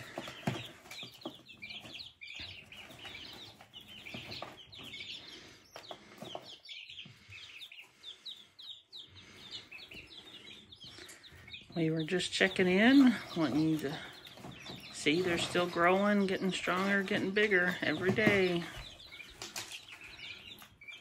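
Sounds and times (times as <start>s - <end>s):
chicks peeping: 0.0s - 21.0s.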